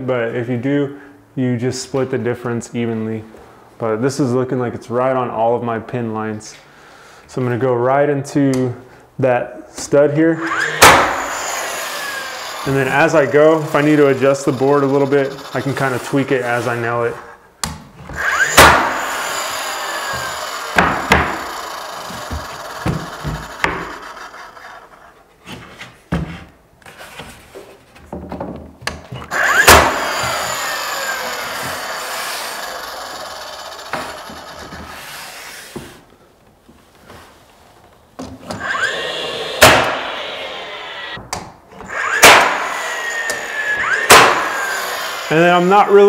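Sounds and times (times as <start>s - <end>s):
nail gun shots: 10.4s - 12.2s, 18.4s - 19.4s, 20.1s - 21.8s, 29.3s - 30.6s, 39.6s - 40.3s, 42.0s - 44.9s
motor winding down whine: 10.4s - 16.0s, 18.2s - 25.0s, 29.3s - 35.4s, 38.6s - 41.2s, 41.9s - 46.0s.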